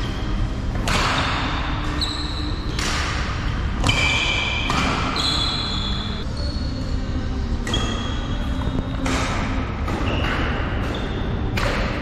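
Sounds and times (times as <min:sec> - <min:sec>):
rackets hitting shuttlecock: 0:00.7 - 0:06.1, 0:07.6 - 0:12.0
shoes squeaking on court: 0:01.2 - 0:09.2, 0:09.9 - 0:11.5.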